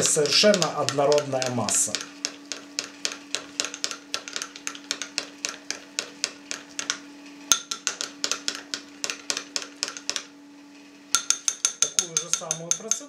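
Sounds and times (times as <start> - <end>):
spoon clinking in ceramic bowl: 6.5 - 8.8, 11.2 - 13.0.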